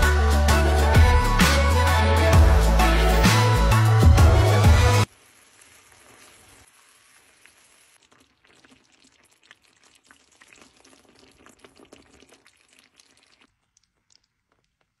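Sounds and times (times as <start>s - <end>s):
sauce bubbling in a skillet: 5.1s - 15.0s.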